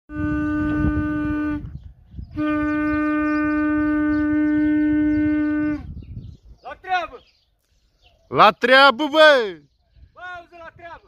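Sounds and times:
horn blowing long notes: 0.1s - 6.2s.

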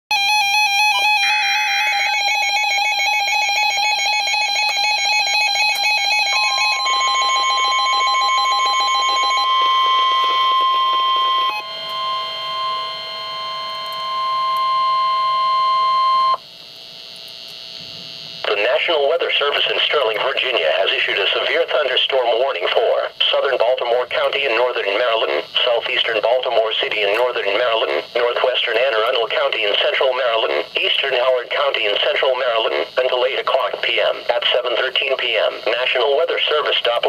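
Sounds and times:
steady warning alarm tone: 0.1s - 37.0s
electronic alert beeps: 6.3s - 12.9s
screeching digital data burst: 6.6s - 13.2s.

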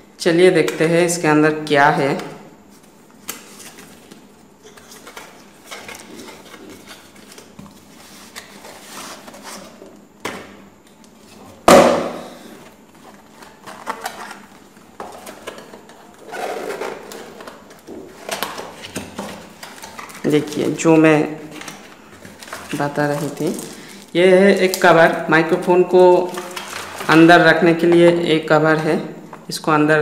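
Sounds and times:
cardboard rustling and scraping: 2.7s - 9.9s
sharp knock: 11.7s - 12.4s.

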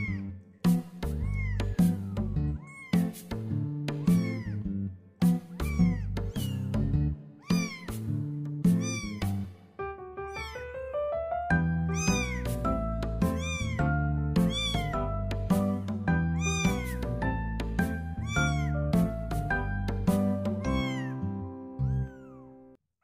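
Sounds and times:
kitten mewing: 0.0s - 0.4s, 1.0s - 3.2s, 3.9s - 4.6s, 5.4s - 6.8s, 7.4s - 8.1s, 8.7s - 9.5s, 10.2s - 10.8s, 11.9s - 15.5s, 16.3s - 17.2s, 17.9s - 18.8s, 20.5s - 21.2s, 21.8s - 22.5s
background music: 0.0s - 22.8s.

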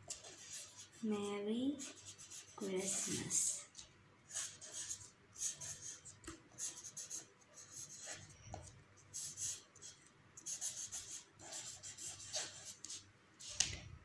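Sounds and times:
pen writing on paper: 0.0s - 1.0s, 1.8s - 3.4s, 4.3s - 8.3s, 9.1s - 13.6s.

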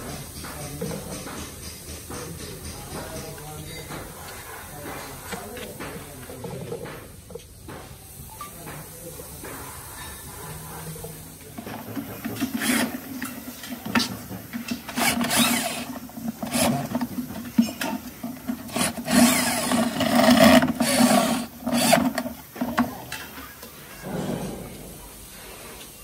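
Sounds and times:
cordless drill driving screws: 12.4s - 13.0s, 14.7s - 17.2s, 18.5s - 22.3s.

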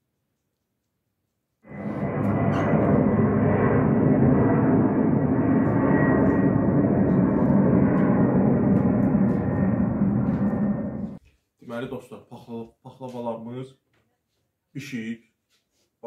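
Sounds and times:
jet airliner flying overhead: 1.6s - 11.2s.

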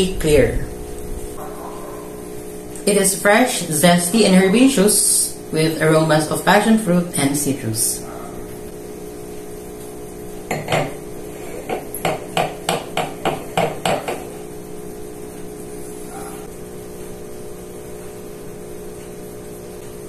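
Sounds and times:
glass base knocking on wooden table: 10.5s - 11.0s, 11.6s - 14.3s.

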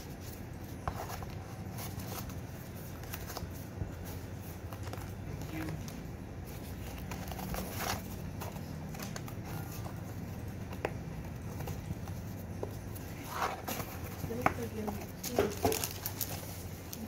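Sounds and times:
low steady background hum: 0.0s - 17.0s.

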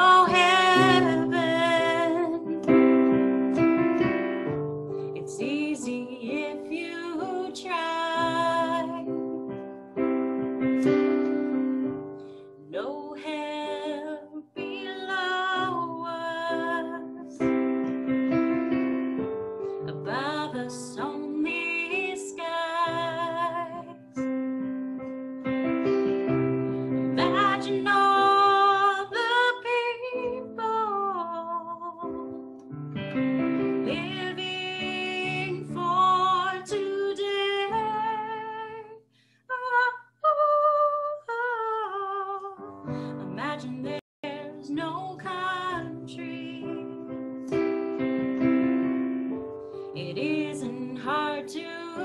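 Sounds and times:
woman singing slow song: 0.0s - 3.1s, 5.1s - 9.4s, 12.6s - 17.6s, 19.9s - 24.2s, 27.1s - 32.5s, 33.8s - 47.2s, 49.9s - 52.0s
electric keyboard chords: 0.0s - 12.7s, 14.5s - 20.4s, 23.0s - 28.7s, 32.1s - 36.0s, 45.9s - 51.0s.

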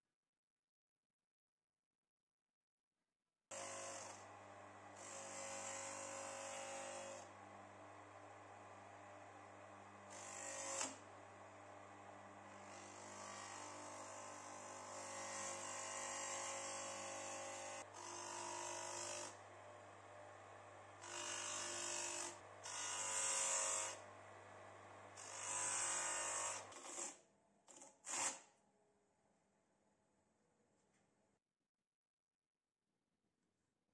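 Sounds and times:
electric sanding motor humming: 3.6s - 19.4s, 21.0s - 24.0s, 25.2s - 27.0s.

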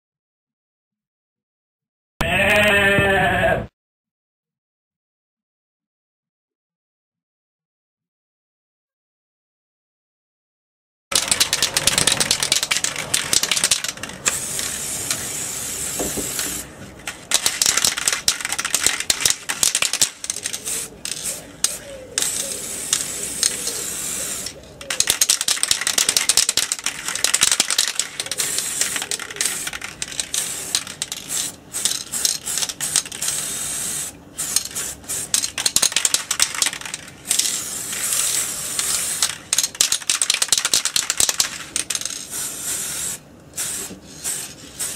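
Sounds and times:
metallic clicking and rattling: 11.1s - 14.4s, 16.4s - 23.7s, 24.8s - 33.3s, 34.6s - 42.2s
spray can hissing: 11.1s - 44.9s.

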